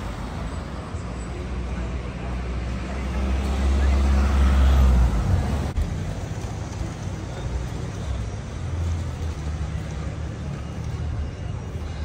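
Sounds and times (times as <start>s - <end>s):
vehicles passing: 0.0s - 12.0s.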